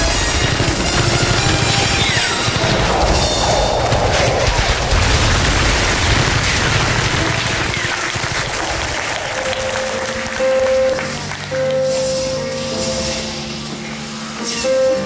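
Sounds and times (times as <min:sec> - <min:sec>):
explosions with heavy rumble: 0:00.0 - 0:08.9
gunfire: 0:00.0 - 0:09.0.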